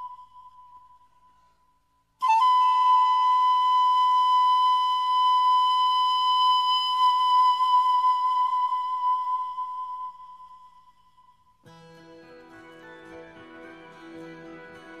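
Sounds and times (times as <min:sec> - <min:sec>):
high held musical note: 0:09.6 - 0:15.0.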